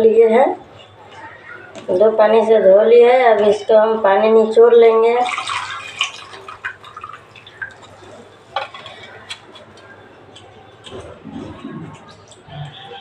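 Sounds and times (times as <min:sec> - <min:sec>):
water dripping into a steel bowl: 0:05.2 - 0:08.2.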